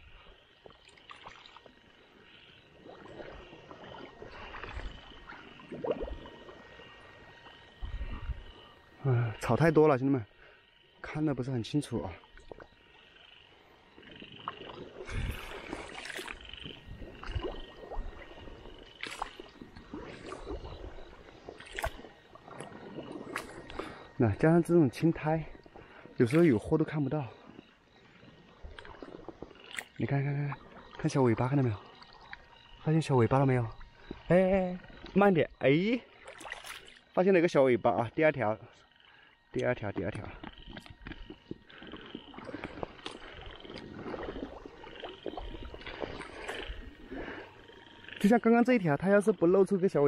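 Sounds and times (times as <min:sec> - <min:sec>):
footsteps wading through water: 0:00.0 - 0:08.8, 0:12.1 - 0:37.6, 0:39.6 - 0:48.5
frogs trilling: 0:00.0 - 0:50.0
squelching footsteps in wet grass: 0:14.0 - 0:24.0, 0:36.1 - 0:37.1, 0:39.6 - 0:48.3.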